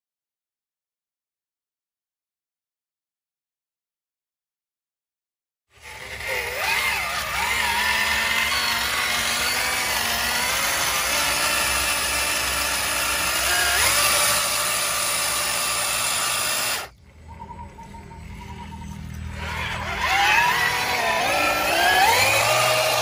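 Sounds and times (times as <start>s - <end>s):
electric motor whining: 5.8s - 23.0s.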